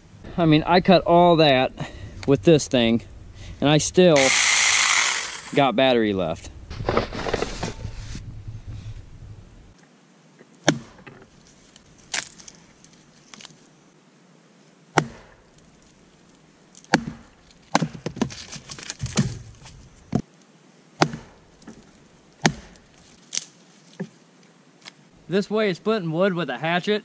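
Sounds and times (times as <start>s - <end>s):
hatchet knocking wood: 10.6s - 11.2s, 15.0s - 15.4s, 16.9s - 18.3s, 21.0s - 21.8s, 22.4s - 22.8s
wood cracking: 10.7s - 13.6s, 15.0s - 20.2s, 21.0s - 24.1s.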